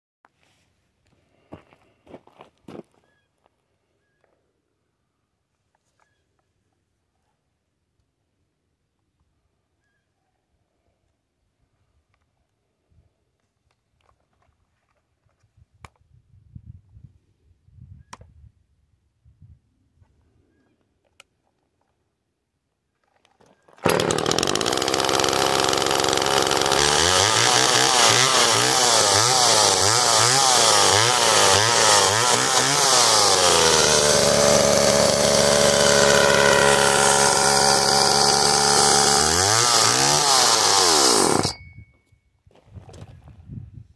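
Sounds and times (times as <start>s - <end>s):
chainsaw starting and revving: 23.8s - 41.6s.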